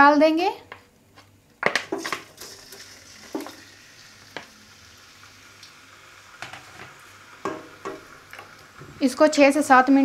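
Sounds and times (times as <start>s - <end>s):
meat sizzling in hot oil: 2.0s - 10.0s
wooden spatula knocking on pan: 6.4s - 8.1s.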